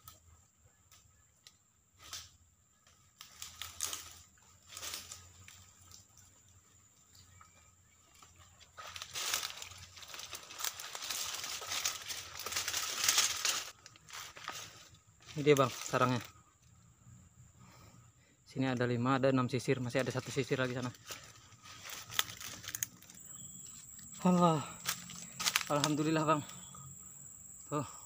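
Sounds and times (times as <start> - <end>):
dry leaves crackling and rustling: 3.2 - 6.3, 8.1 - 16.3, 19.8 - 26.8.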